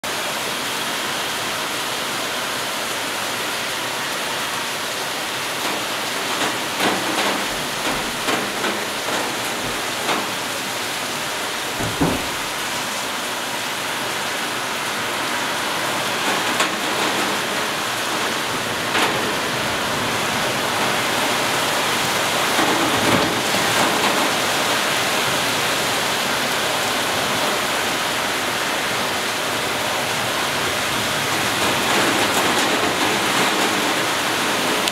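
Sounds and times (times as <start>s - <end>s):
heavy rain pouring: 0.0s - 34.9s
sharp taps and knocks: 5.6s - 10.6s, 11.8s - 12.6s.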